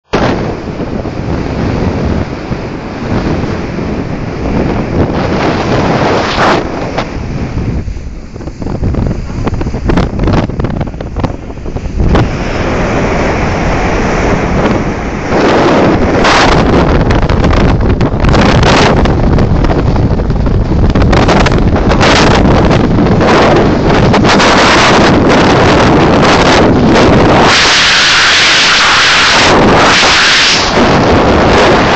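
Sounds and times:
wind rushing over microphone: 0.0 - 31.9
water hissing: 27.3 - 31.9.

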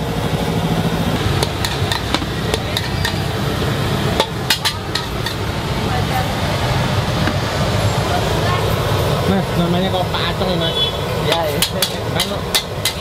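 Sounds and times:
metal utensils clanking on wok: 1.2 - 5.5, 11.2 - 13.0.

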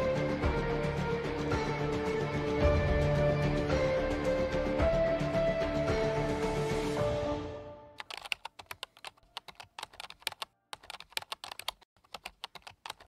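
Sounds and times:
background music: 0.0 - 11.8
keyboard typing clicks: 8.0 - 13.0.

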